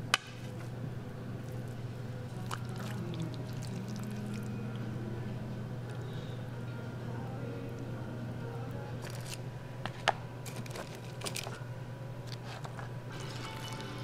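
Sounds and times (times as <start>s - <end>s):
steady low hum: 0.0s - 14.0s
ladle scooping and pouring sauce: 1.4s - 4.5s.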